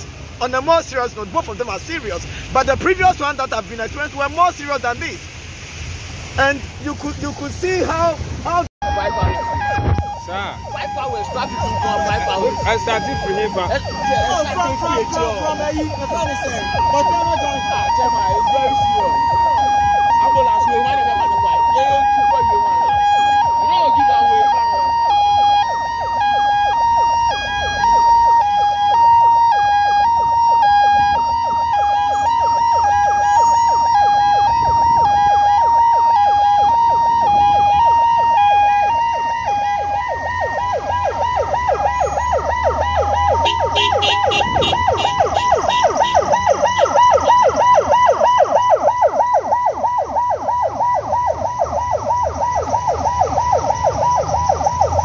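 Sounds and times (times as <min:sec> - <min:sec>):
ambulance siren: 0:00.0 - 0:05.2, 0:06.4 - 0:55.0
traffic rumble: 0:00.0 - 0:55.0.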